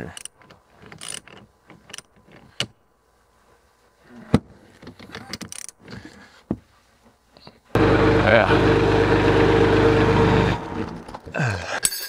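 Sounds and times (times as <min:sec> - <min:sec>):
ratchet wrench metal clicks: 0:01.0 - 0:02.1.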